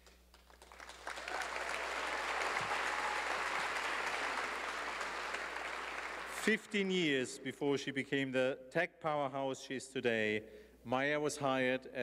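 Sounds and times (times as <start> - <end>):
audience applauding: 0.3 - 6.6.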